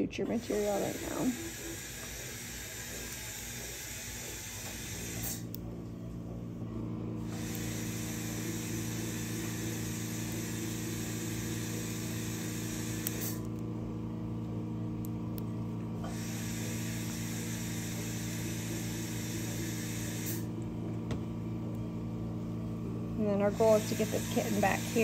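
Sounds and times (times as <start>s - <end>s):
electrical hum: 0.0s - 25.0s
hiss: 7.3s - 13.4s, 16.0s - 20.4s.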